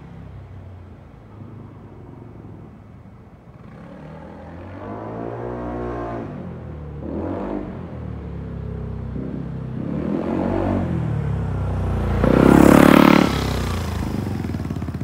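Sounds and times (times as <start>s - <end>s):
scooter engine accelerating past: 9.8s - 15.0s.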